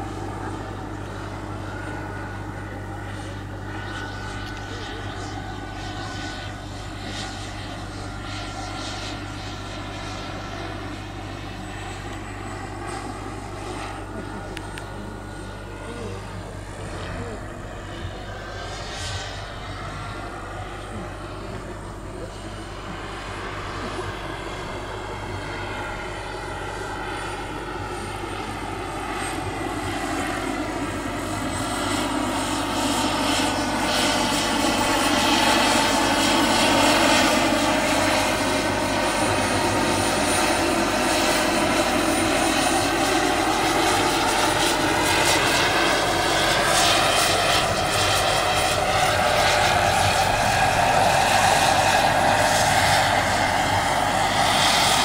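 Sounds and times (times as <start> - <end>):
model helicopter whine: 0.0 - 55.0.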